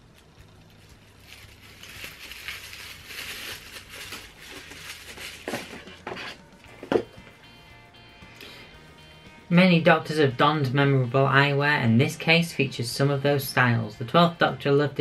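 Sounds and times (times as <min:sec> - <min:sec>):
paper packaging crinkling: 0:00.0 - 0:06.5.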